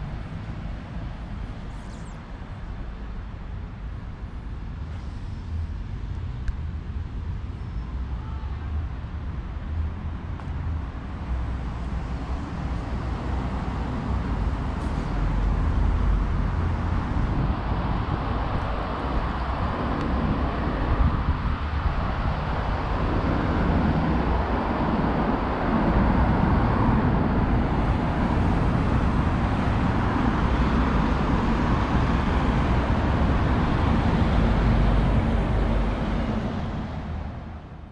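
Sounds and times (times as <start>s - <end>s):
vehicle engine and tyre noise: 0.0s - 37.9s.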